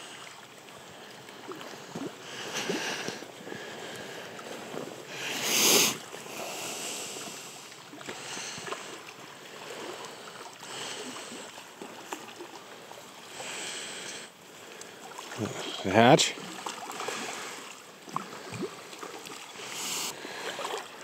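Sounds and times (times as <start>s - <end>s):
fish thrashing in water: 16.4s - 21.0s.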